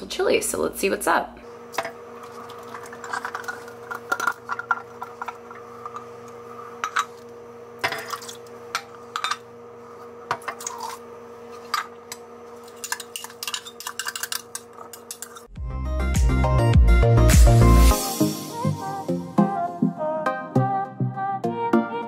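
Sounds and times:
steady low hum: 0.0 - 15.5
utensils clinking on cans: 12.7 - 15.5.

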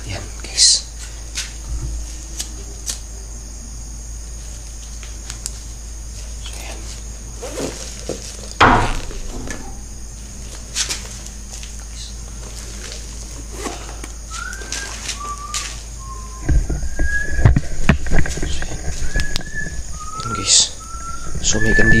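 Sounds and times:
night insects chirring: 0.0 - 22.0
loud rustling knock: 7.6 - 11.1.

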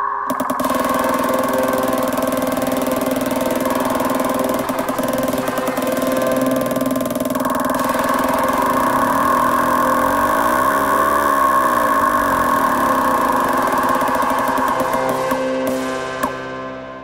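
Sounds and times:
low tone gliding up and down: 0.0 - 16.6
synthesised electronic drone: 0.0 - 17.0.

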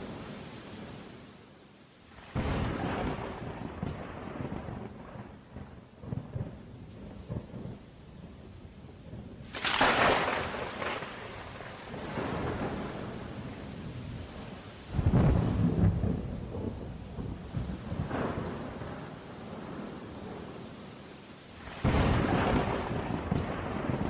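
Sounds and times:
rain: 0.0 - 24.0
loud thunderclap: 2.2 - 7.8, 9.5 - 13.6, 14.9 - 20.5, 21.6 - 24.0
rolling thunder: 2.2 - 20.6, 21.6 - 24.0.

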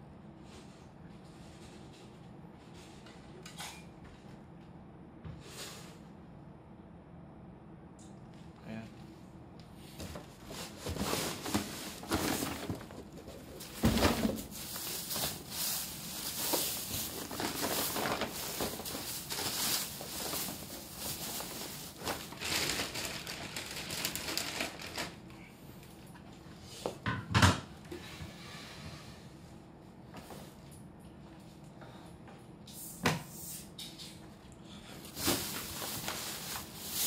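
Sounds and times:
objects rustling and clattering: 0.4 - 4.5, 9.8 - 25.2, 34.8 - 37.0.

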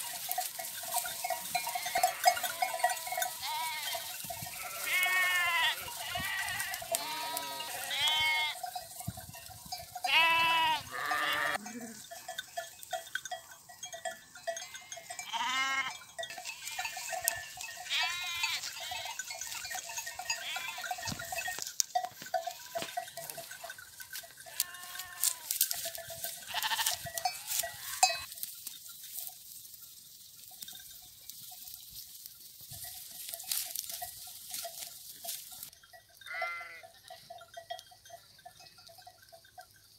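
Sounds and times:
bell clinking: 0.0 - 29.4, 32.7 - 39.9
crisp clicks of grazing: 0.0 - 39.9
sheep bleating: 1.6 - 8.6, 10.0 - 12.0, 14.6 - 17.0, 17.8 - 19.3, 20.3 - 20.9, 24.5 - 25.6, 26.5 - 28.3, 36.3 - 36.8.

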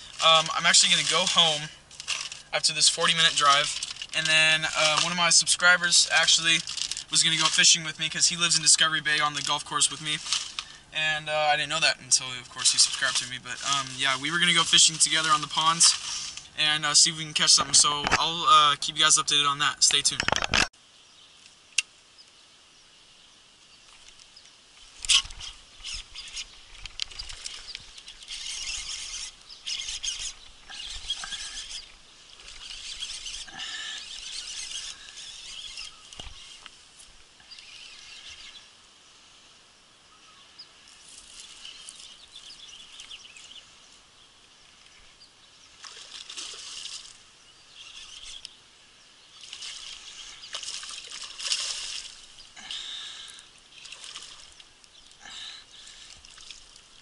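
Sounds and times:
birds chirping: 0.0 - 57.0
fishing reel handling bursts: 25.0 - 36.7.

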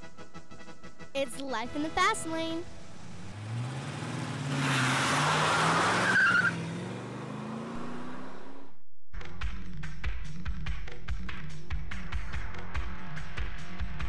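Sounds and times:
hard wheels rushing on asphalt: 3.1 - 8.4.

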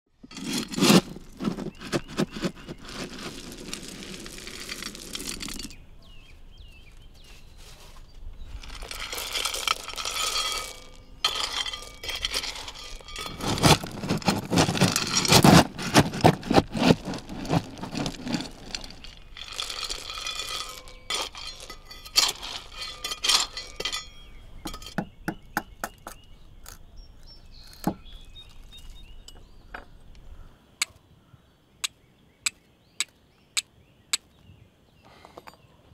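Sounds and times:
charcoal crunching in a forge: 0.2 - 5.8, 8.5 - 24.8.

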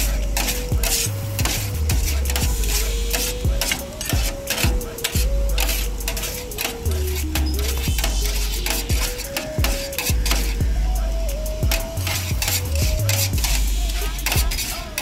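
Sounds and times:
background music with beat: 0.0 - 15.0.

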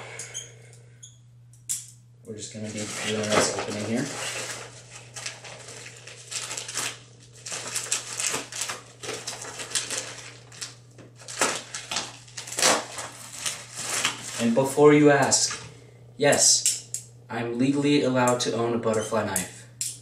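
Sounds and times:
steady low hum: 0.0 - 20.0
plastic bag crinkling and tearing: 2.6 - 14.8.

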